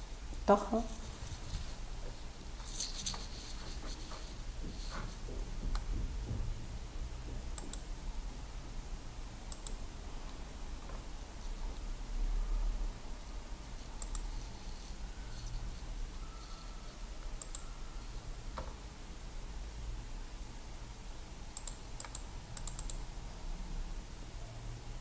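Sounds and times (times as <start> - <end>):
computer keys clicking: 7.6 - 7.9, 9.5 - 11.0, 13.9 - 14.4, 17.4 - 17.6, 21.6 - 23.0.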